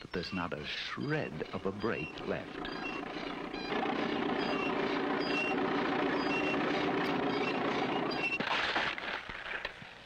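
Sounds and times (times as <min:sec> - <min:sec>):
vehicle engine running: 0:01.9 - 0:08.4
loud burst of noise: 0:02.0 - 0:08.4.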